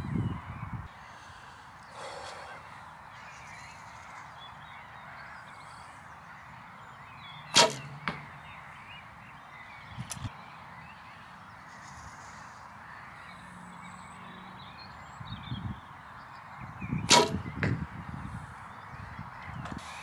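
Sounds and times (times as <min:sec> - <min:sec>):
bow string snap: 0:07.6 - 0:08.2, 0:17.1 - 0:17.4.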